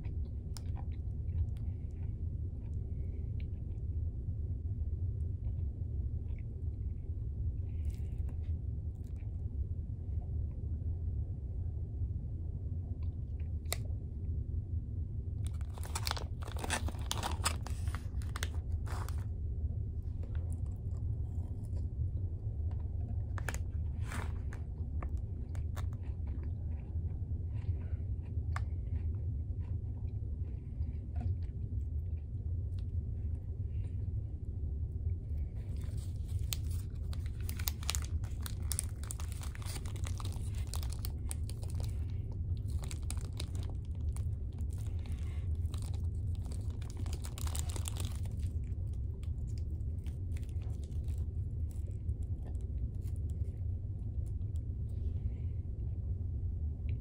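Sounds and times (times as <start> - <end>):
low engine hum: 0.0 - 57.0
cellophane wrappers crinkling: 15.4 - 19.3, 35.7 - 52.0.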